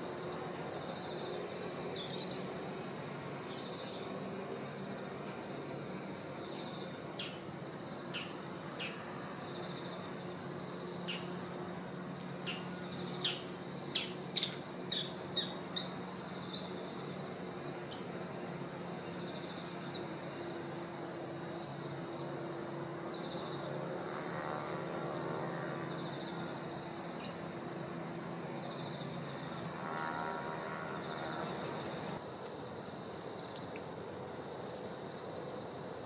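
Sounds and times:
steady low hum: 0.0 - 36.0
small birds chirping and trilling: 12.2 - 19.2.

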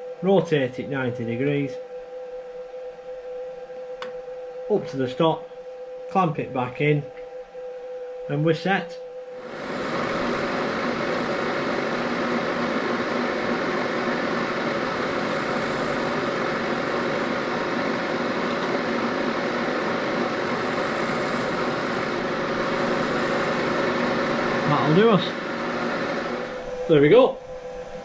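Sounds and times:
milling machine cutting metal: 9.4 - 27.1.

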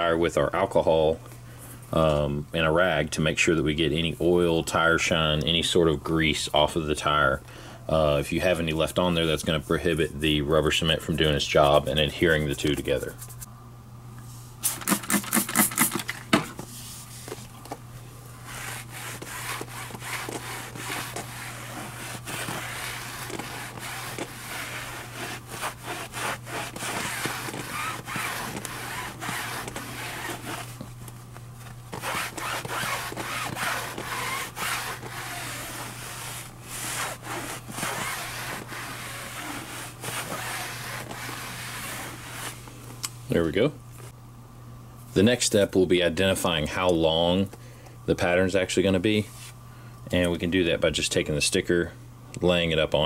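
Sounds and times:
cloth towel rubbing rubber tire: 18.4 - 30.8, 31.9 - 42.7.

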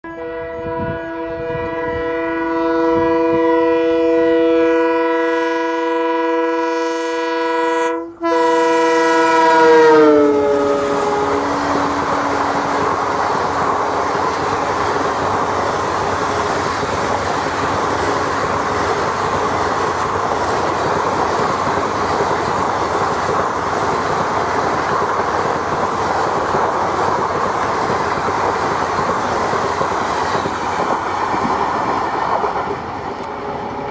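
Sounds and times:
locomotive air horn: 0.0 - 13.2
train wheels clickety-clack: 10.5 - 33.9.

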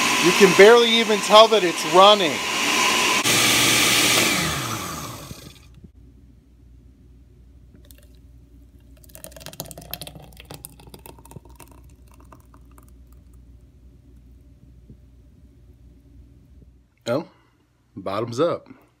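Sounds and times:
thick smoothie pouring into cup: 7.8 - 13.4.

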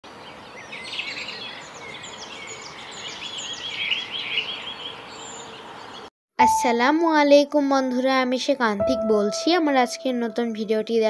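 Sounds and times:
songbirds chirping and singing: 0.2 - 6.1.

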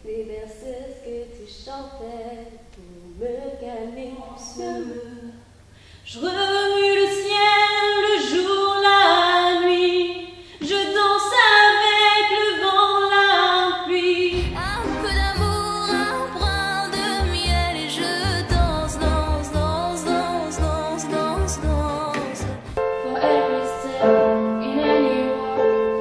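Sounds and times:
woman singing unaccompanied: 0.0 - 26.0
music with pulsing bass: 14.4 - 22.8.

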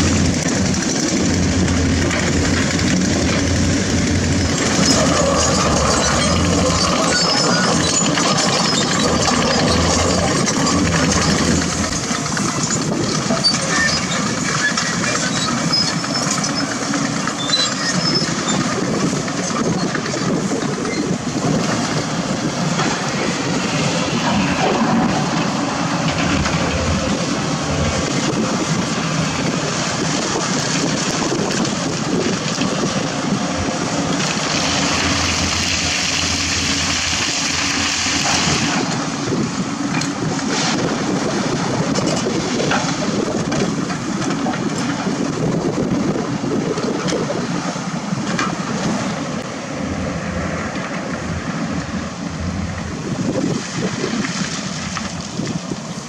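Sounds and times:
heavy diesel engines running: 0.0 - 56.0
rushing noise: 0.0 - 56.0.

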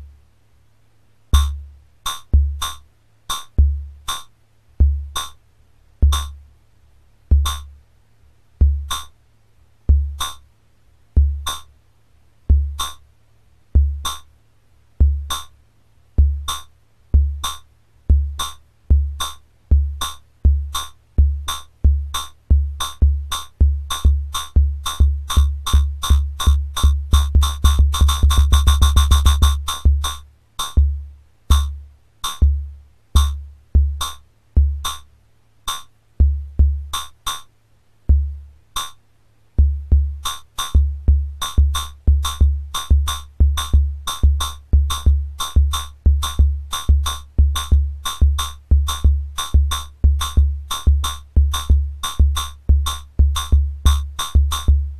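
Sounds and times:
synthesizer drum pattern: 1.4 - 4.2, 6.0 - 6.4, 7.3 - 7.7, 8.6 - 9.1, 9.9 - 10.4, 11.2 - 11.7, 12.5 - 13.0, 16.2 - 35.1, 39.6 - 54.9.

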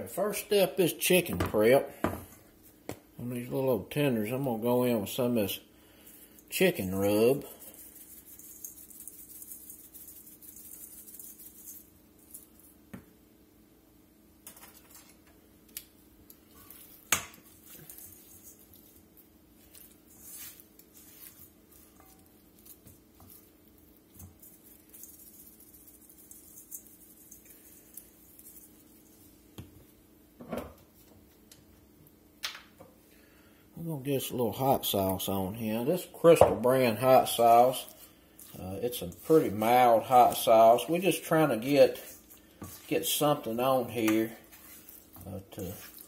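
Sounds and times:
chicken rubbed by hand in bowl: 4.8 - 12.8, 16.6 - 29.6, 34.5 - 46.0
seasoning shaken from shaker jar: 6.1 - 12.7, 17.5 - 29.3, 36.9 - 46.0.

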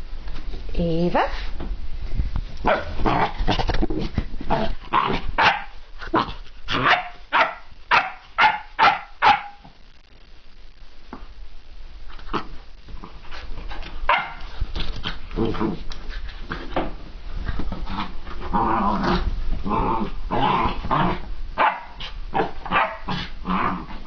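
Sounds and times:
puppy barking: 2.7 - 3.0, 5.4 - 5.8, 6.8 - 9.6, 14.1 - 14.4, 21.6 - 22.0, 22.7 - 23.1.

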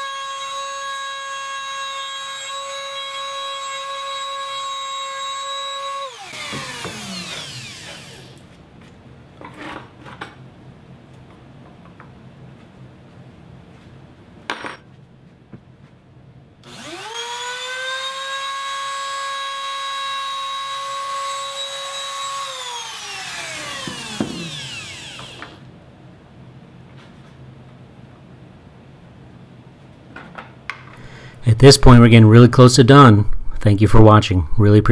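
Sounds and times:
trim router running: 0.1 - 8.4, 16.6 - 25.7.

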